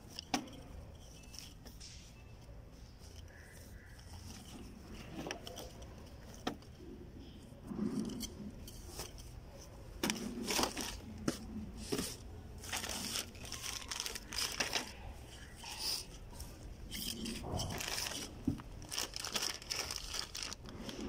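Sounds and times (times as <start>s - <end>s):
plastic packaging crinkling: 10.0s - 21.0s.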